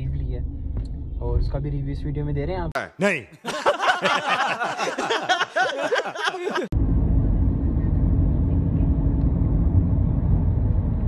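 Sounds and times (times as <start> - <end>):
film dialogue: 0.0 - 6.7
car engine and road noise: 6.7 - 11.0.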